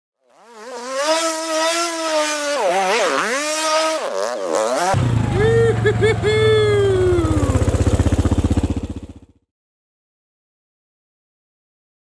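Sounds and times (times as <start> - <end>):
atv engine revving: 0.2 - 9.4.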